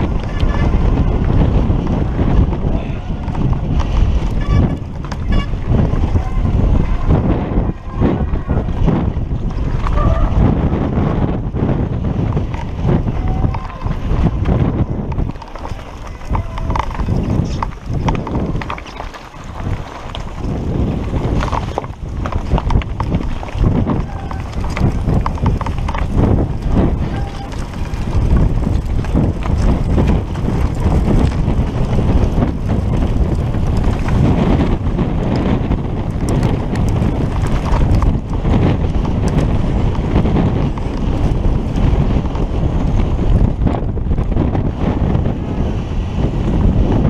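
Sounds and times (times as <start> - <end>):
bike rattling and clattering: 0.0 - 47.0
wind buffeting microphone: 0.0 - 47.0
tyres crunching over loose rock: 12.2 - 43.6.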